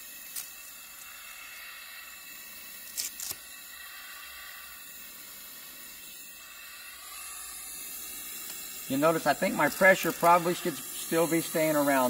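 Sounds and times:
gas hissing through mask: 0.0s - 12.0s
velcro straps scratching: 2.9s - 3.4s.

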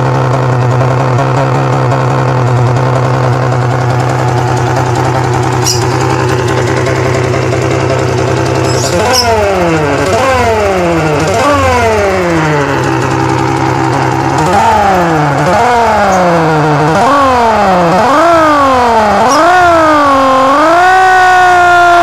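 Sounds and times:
electronic engine-like buzz: 0.0s - 22.0s.

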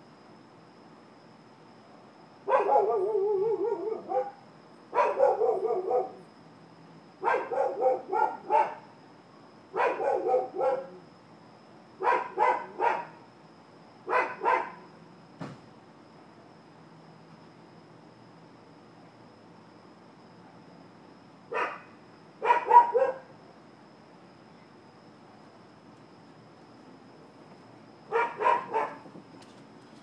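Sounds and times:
dogs barking: 2.5s - 6.2s, 7.2s - 8.8s, 9.8s - 11.0s, 12.0s - 13.2s, 14.1s - 14.9s, 21.5s - 23.3s, 28.1s - 29.0s.

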